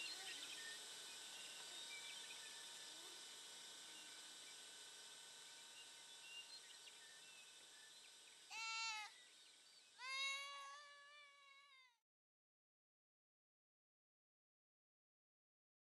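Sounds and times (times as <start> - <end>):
animal calling: 8.5 - 9.2, 10.0 - 11.4.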